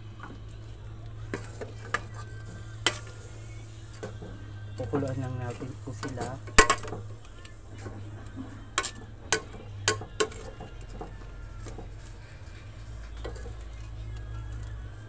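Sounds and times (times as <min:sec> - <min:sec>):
metal utensil clinking on pot: 0:04.8 - 0:07.0, 0:08.7 - 0:11.1.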